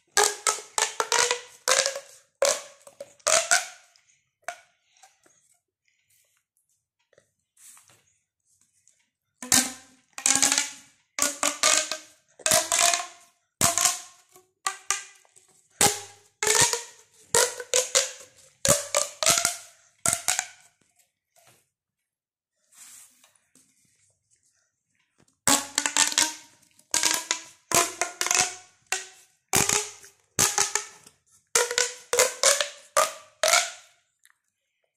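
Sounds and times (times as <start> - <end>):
pop tube snapping: 0.2 - 3.7, 9.4 - 14.1, 15.8 - 20.5, 25.5 - 30.9.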